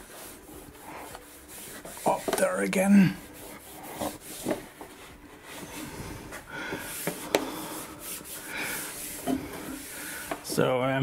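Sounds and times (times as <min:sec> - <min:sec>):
cloth wiping lamp fitting: 0:00.0 - 0:10.5
light knocks and scrapes: 0:01.8 - 0:02.6.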